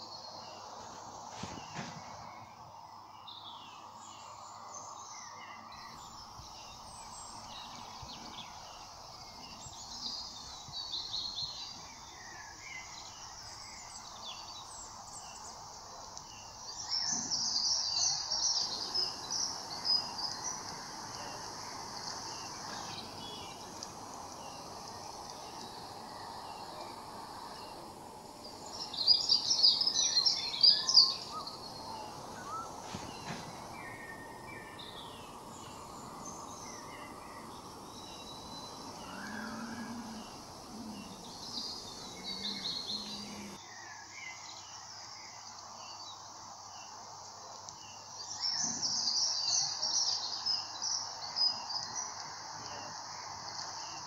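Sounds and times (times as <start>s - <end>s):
songbirds chirping and twittering: 0.0s - 54.0s
steady background hum: 16.8s - 43.6s.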